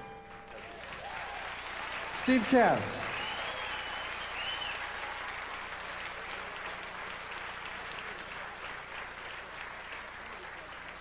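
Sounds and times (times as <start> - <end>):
audience applauding: 0.4 - 11.0
long whistle from crowd: 3.0 - 5.0.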